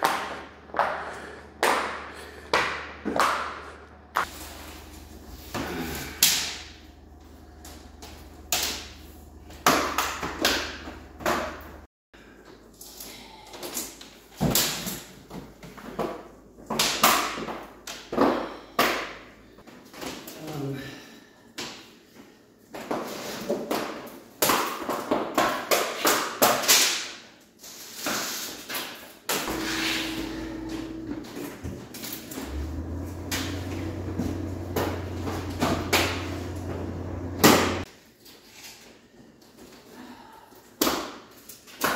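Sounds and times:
steady low hum: 0.3s - 11.9s, 29.5s - 37.9s.

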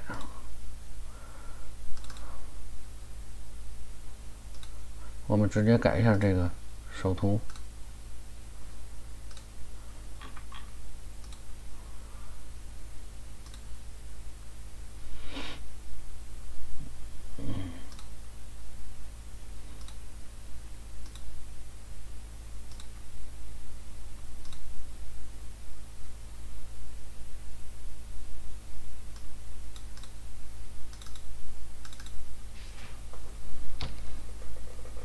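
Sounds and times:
low electrical hum: 0.0s - 35.0s
computer mouse clicks: 1.9s - 2.3s, 4.5s - 4.8s, 9.2s - 9.5s, 10.2s - 11.5s, 13.4s - 13.7s, 19.8s - 20.0s, 21.0s - 21.3s, 22.7s - 23.0s, 24.4s - 24.7s, 29.1s - 30.2s, 30.9s - 32.2s.

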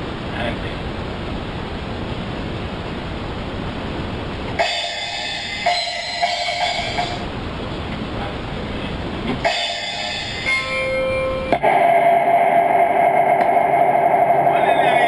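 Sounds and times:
steady rushing noise: 0.0s - 15.0s
filtered sample with sharp hits: 4.5s - 7.5s, 9.4s - 15.0s.

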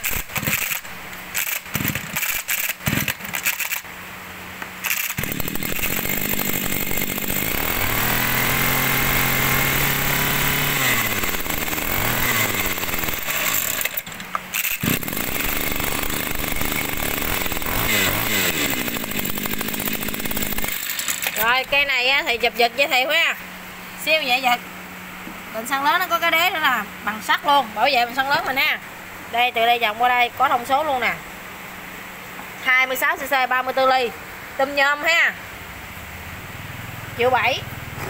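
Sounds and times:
brush cutter engine revving: 0.0s - 3.9s, 4.8s - 21.8s
recoil starter pull: 0.0s - 3.9s, 4.8s - 21.7s.

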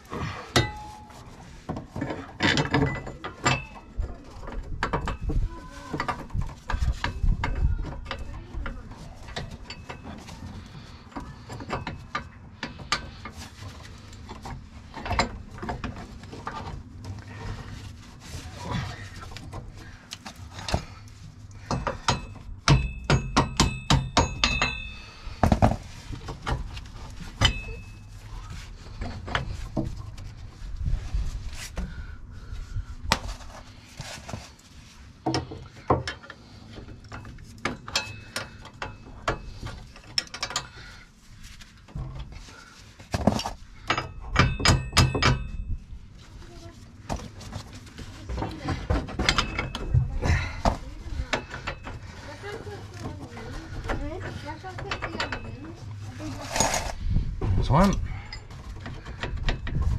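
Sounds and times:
metal bolts clinking and clanking: 2.0s - 5.3s, 21.6s - 25.3s, 26.2s - 28.0s, 37.1s - 40.8s, 43.8s - 45.6s, 48.7s - 50.1s, 53.7s - 56.9s.

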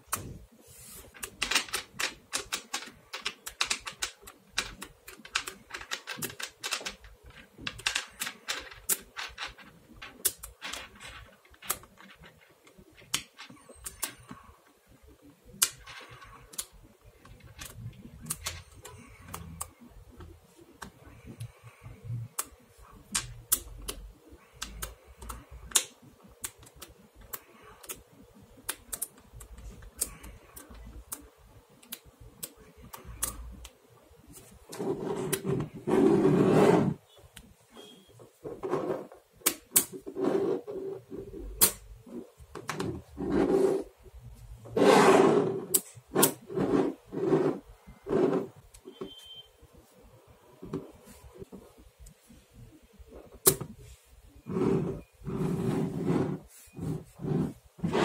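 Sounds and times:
magnetic balls clicking: 1.1s - 35.8s.

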